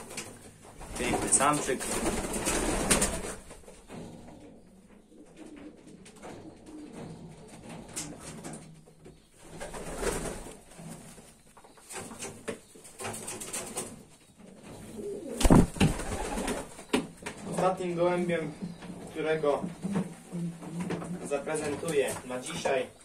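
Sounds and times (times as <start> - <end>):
pigeons cooing: 0.0 - 23.0.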